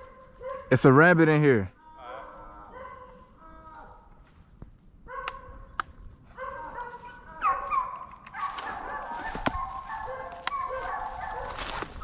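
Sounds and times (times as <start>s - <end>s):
dogs yelping and baying: 0.0s - 0.7s, 2.2s - 3.4s, 5.1s - 12.0s.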